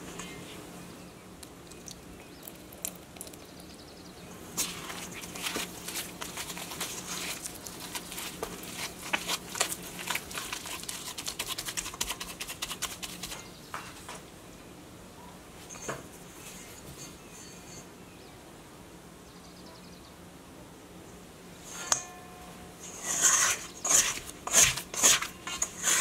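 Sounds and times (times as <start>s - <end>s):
dough squishing by hand: 4.5s - 13.5s, 22.8s - 26.0s.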